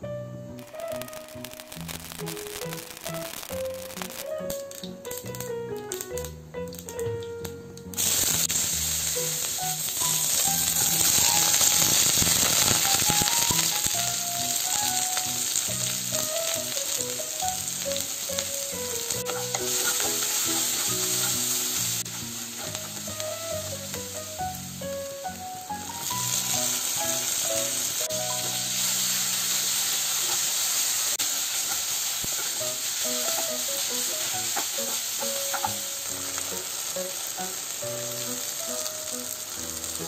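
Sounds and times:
soft background music: 0.0s - 30.5s, 31.6s - 40.0s
hot oil sizzling in a pan: 0.5s - 40.0s
spoon stirring in a pan: 19.1s - 23.3s, 31.2s - 35.9s.

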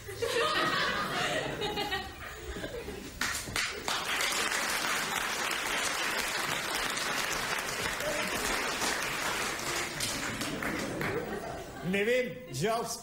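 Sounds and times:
audience applauding: 3.2s - 11.7s.

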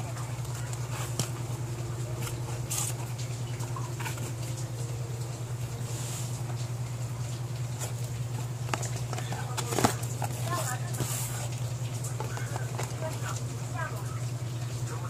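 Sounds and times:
cardboard box rustling and tapping: 0.0s - 1.6s, 7.7s - 13.4s
steady low hum: 0.0s - 15.0s.

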